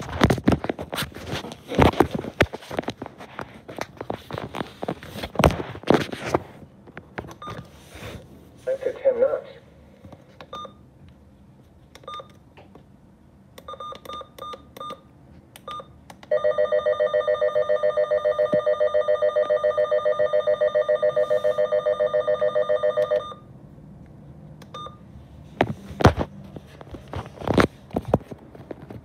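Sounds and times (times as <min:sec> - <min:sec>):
key beeps: 0:10.5 - 0:10.8, 0:12.0 - 0:12.4, 0:13.6 - 0:16.5, 0:24.7 - 0:25.0.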